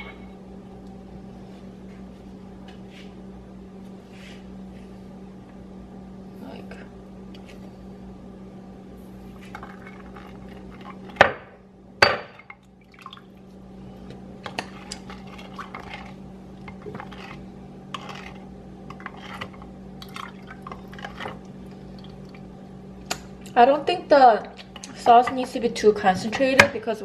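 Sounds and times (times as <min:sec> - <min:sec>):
spoon stirring in glass bowl: 0:14.5 - 0:19.7.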